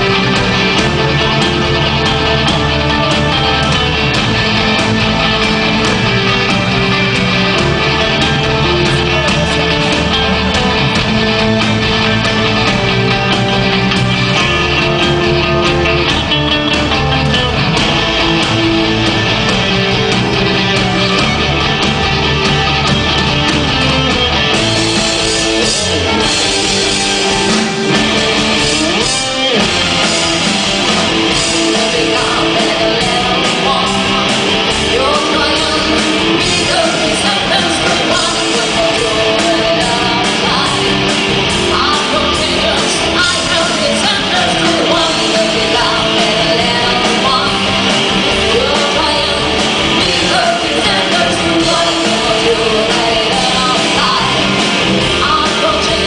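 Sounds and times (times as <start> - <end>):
live rock band playing: 0.0 - 56.0
woman singing: 7.9 - 10.4, 31.3 - 56.0.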